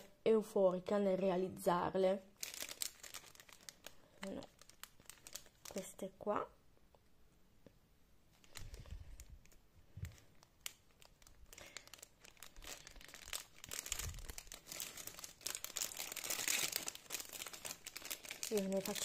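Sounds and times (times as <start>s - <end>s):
plastic bags crinkling: 2.4s - 6.0s, 8.4s - 19.0s.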